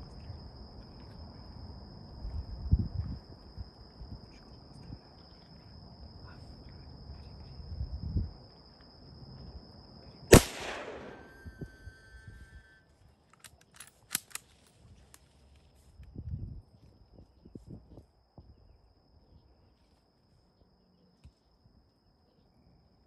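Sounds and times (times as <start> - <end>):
sharp clicks: 10.3 - 11.5
rifle shot echoing: 10.3 - 11.8.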